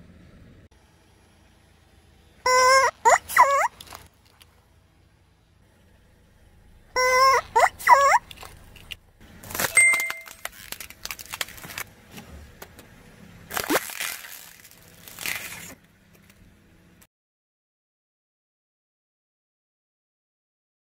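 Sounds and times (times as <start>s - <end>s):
rubber toy squeak: 2.4s - 4.1s, 6.9s - 8.9s, 9.5s - 11.6s, 13.5s - 15.8s
foam crackling and crunching: 9.4s - 11.9s, 13.5s - 16.4s.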